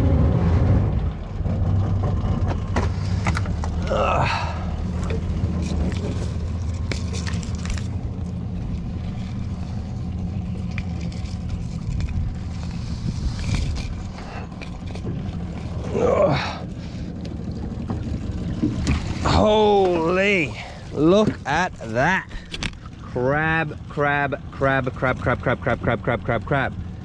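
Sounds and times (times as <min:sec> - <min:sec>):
outboard motor idling: 0:00.0 - 0:27.0
rope scraping and knocking on hull: 0:04.8 - 0:15.9, 0:17.8 - 0:20.1, 0:20.9 - 0:22.9.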